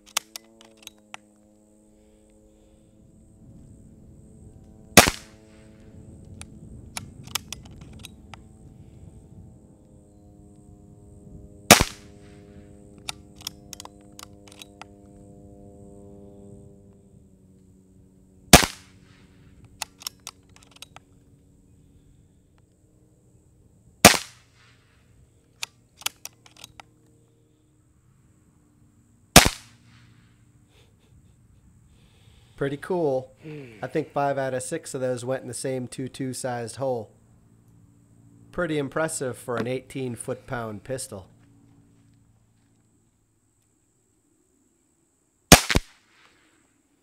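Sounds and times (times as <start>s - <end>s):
pistol action clicks: 0.0s - 1.3s, 6.3s - 8.4s, 13.0s - 14.9s, 19.6s - 21.1s, 25.6s - 27.2s, 29.4s - 29.8s, 45.5s - 46.3s
air pistol shots: 5.0s - 5.4s, 11.7s - 12.4s, 18.5s - 19.0s, 24.0s - 24.8s, 29.4s - 30.0s, 45.5s - 46.4s.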